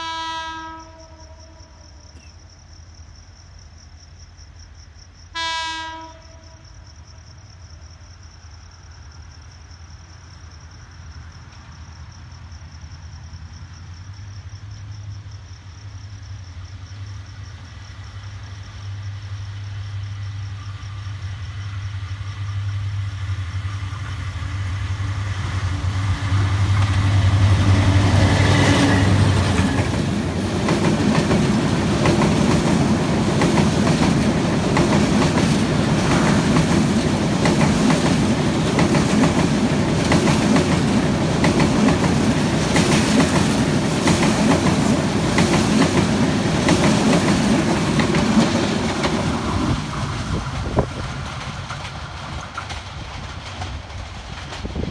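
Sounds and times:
diesel locomotive engine hum: 13.4 - 54.9
train wheels clickety-clack: 23.4 - 54.9.

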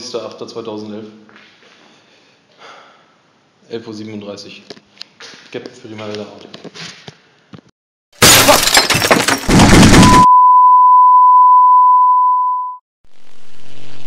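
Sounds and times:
loud crashing noise: 9.2 - 10.3
steady single-pitch beep: 10.0 - 12.8.

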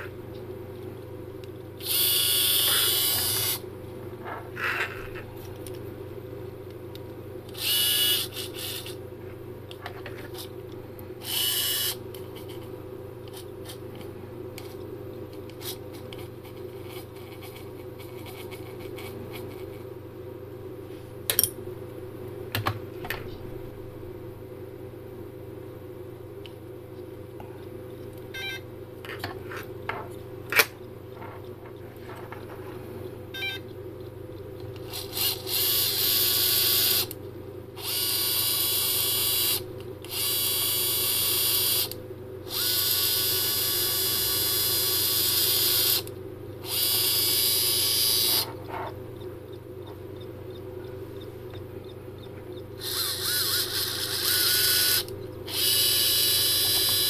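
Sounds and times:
servo motor whine: 1.8 - 3.6, 7.6 - 9.0, 11.2 - 12.0, 37.8 - 48.9, 52.8 - 57.0.

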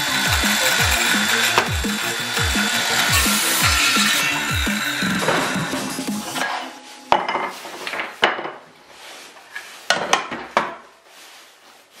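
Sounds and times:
saw knocking on metal rails: 0.0 - 6.5
brush sweeping sawdust: 11.1 - 12.0.

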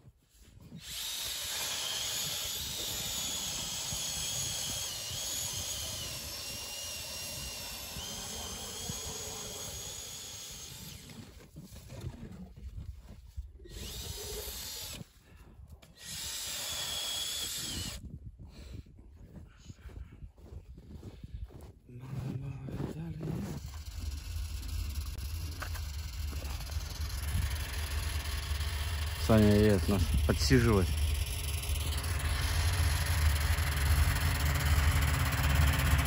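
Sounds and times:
cordless drill motor whining: 0.7 - 11.6, 13.6 - 15.2, 15.8 - 18.1, 23.2 - 36.0.

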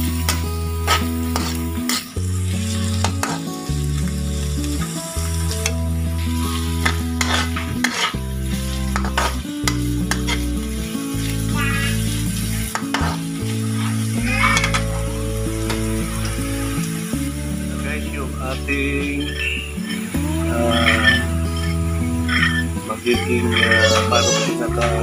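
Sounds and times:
low held notes: 0.0 - 25.0
vegetables sizzling in hot oil: 0.0 - 25.0
spatula scraping and clicking: 6.8 - 8.1.

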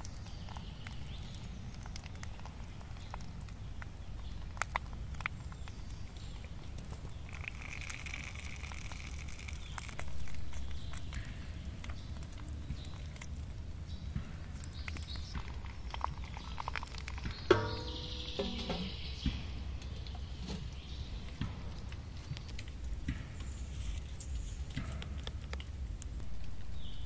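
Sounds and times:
low outdoor rumble: 0.0 - 27.0
metal spoon and cup tapping wok: 17.5 - 19.0.

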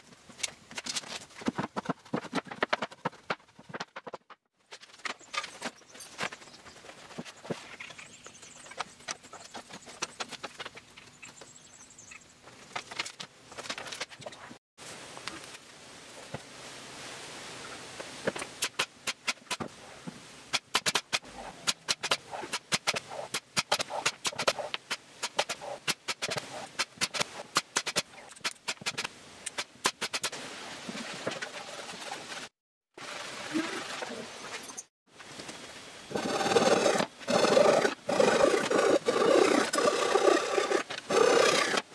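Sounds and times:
pneumatic nailer clacks: 20.5 - 30.3, 36.1 - 41.9.

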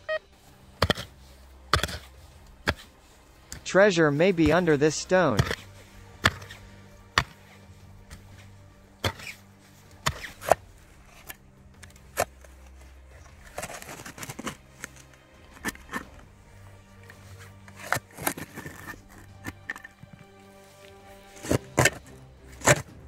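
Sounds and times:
tool striking rock: 0.8 - 2.9, 5.3 - 7.5, 9.0 - 9.4, 21.4 - 22.9
scraping and rubble shifting: 4.4 - 23.0.

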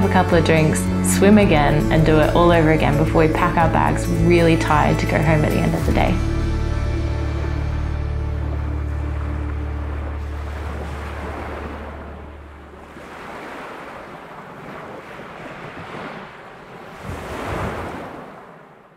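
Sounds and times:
low music drone: 0.0 - 12.7
sea surf breaking: 0.0 - 18.9.

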